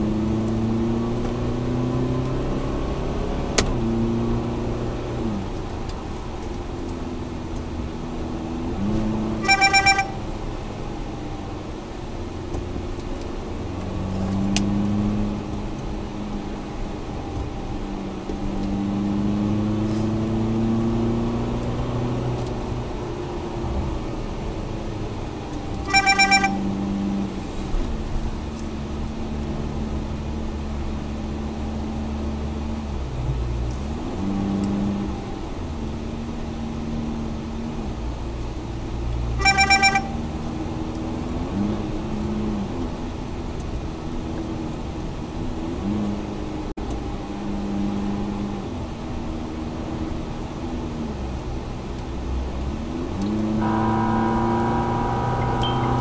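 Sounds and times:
car engine accelerating: 0:00.0 - 0:56.0
car horn short blasts: 0:09.3 - 0:10.2, 0:25.8 - 0:26.7, 0:39.4 - 0:40.2, 0:53.6 - 0:56.0.

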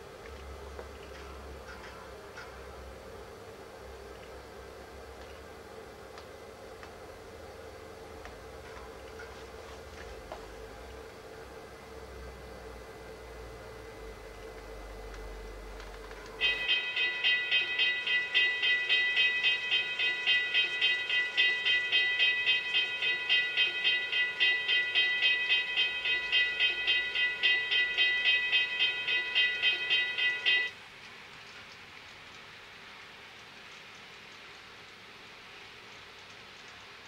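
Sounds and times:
crossing warning bell ringing: 0:16.3 - 0:30.8.

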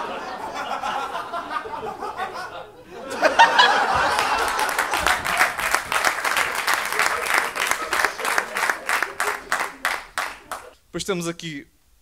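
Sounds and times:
audience laughing: 0:00.0 - 0:10.7
audience clapping: 0:03.4 - 0:10.8.

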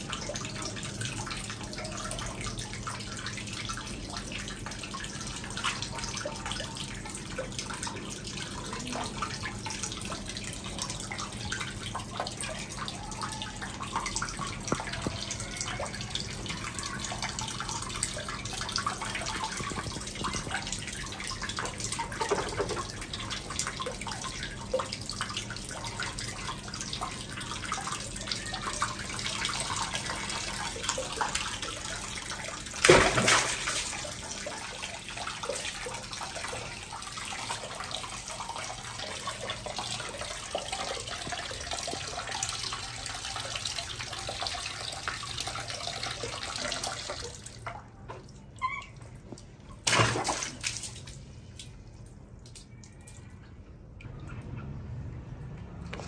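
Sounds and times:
tap water running into basin: 0:00.0 - 0:51.8
water splashing: 0:32.7 - 0:36.0, 0:49.8 - 0:51.7.

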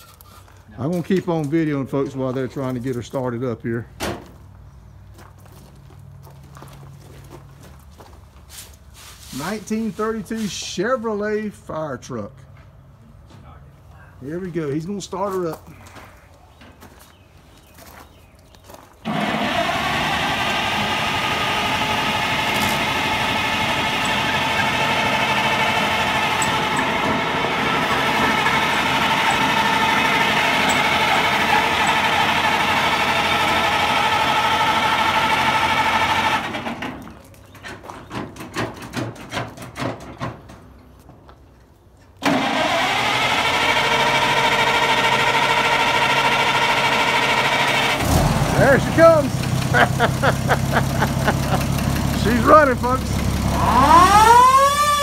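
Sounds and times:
engine starter cranking: 0:19.0 - 0:37.2, 0:42.2 - 0:55.0.

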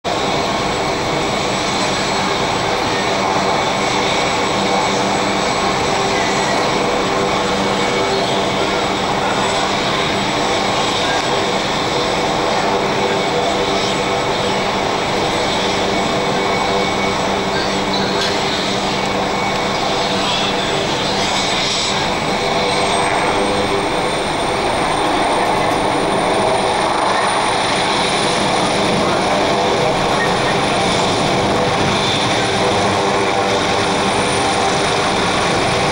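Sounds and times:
helicopter engines and rotors running: 0:00.0 - 0:35.9
high turbine whine: 0:00.1 - 0:35.9.

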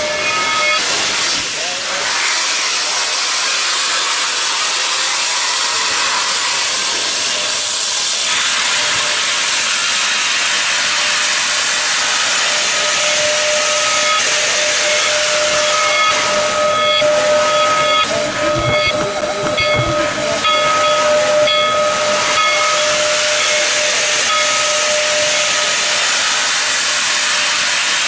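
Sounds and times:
steam hissing: 0:00.0 - 0:28.0
steady singing tone: 0:13.8 - 0:23.6.

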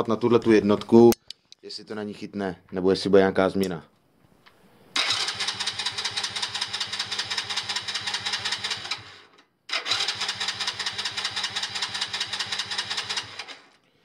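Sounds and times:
electric starter cranking engine: 0:05.0 - 0:13.8.

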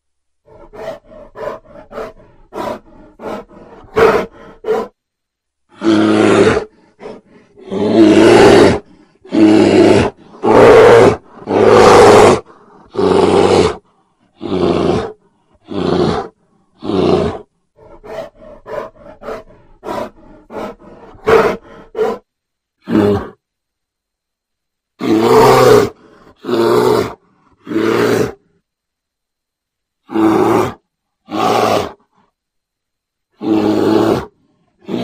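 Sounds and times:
growls and snarls: 0:00.4 - 0:04.9, 0:05.7 - 0:22.2, 0:22.8 - 0:23.4, 0:25.0 - 0:28.5, 0:30.0 - 0:32.2, 0:33.3 - 0:35.0
animals roaring: 0:05.7 - 0:13.8, 0:14.4 - 0:22.2, 0:25.0 - 0:28.4, 0:30.0 - 0:32.0, 0:33.4 - 0:35.0.

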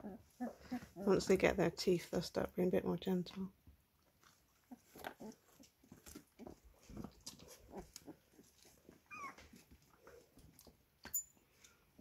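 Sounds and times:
small puppy noises: 0:00.0 - 0:01.3, 0:04.1 - 0:10.8
puppies scuffling: 0:04.8 - 0:10.9
puppy high squeak: 0:09.1 - 0:09.4.

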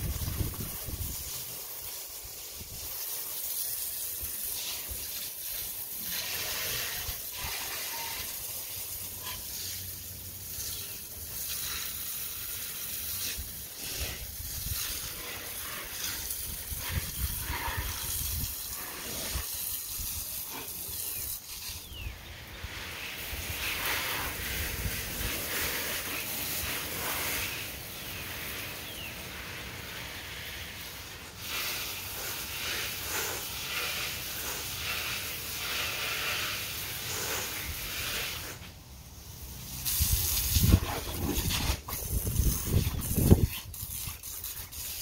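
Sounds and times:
wind rumbling on microphone: 0:00.0 - 0:01.3, 0:16.0 - 0:20.2, 0:39.9 - 0:44.7
hose water spattering: 0:00.0 - 0:45.0.

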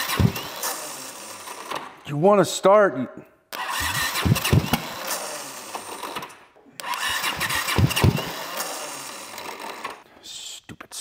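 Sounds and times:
motorcycle electric starter cranking: 0:00.0 - 0:02.0, 0:03.5 - 0:10.1.

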